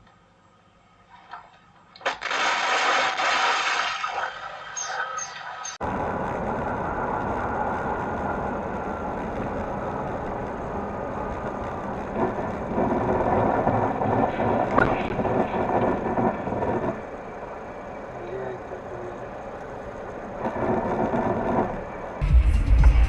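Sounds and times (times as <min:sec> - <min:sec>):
car cabin road and engine rumble: 0:05.8 - 0:23.0.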